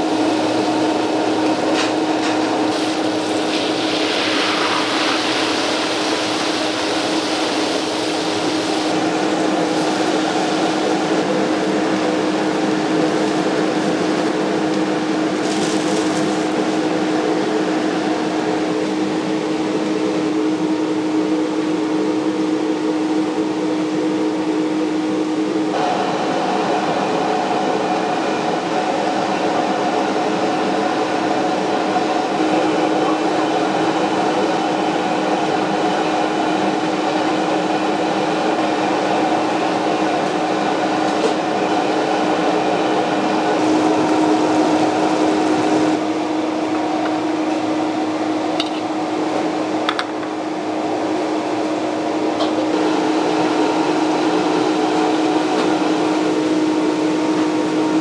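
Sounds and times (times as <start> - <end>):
pot boiling hard: 0.0 - 20.4
gas wok range and fan roaring: 0.0 - 58.0.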